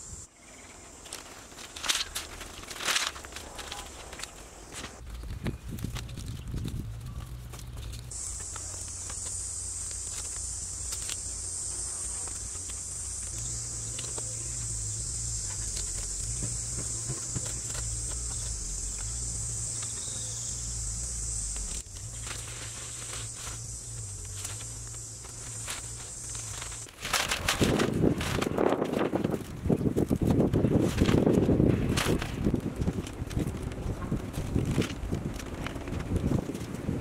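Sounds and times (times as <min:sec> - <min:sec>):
high-pitched insect drone: 0:08.1 - 0:26.9.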